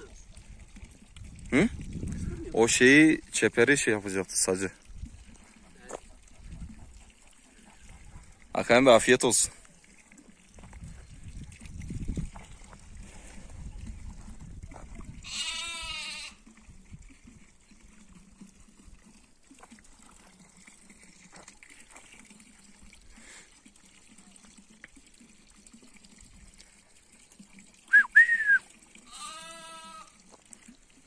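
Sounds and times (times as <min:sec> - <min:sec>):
sheep bleating: 0:15.2 - 0:16.4, 0:29.1 - 0:30.1
sharp high two-part whistle: 0:27.9 - 0:28.6.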